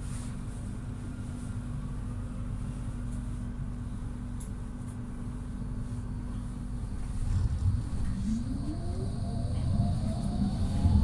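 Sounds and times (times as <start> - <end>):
tram cabin hum and rumble: 0.0 - 11.0.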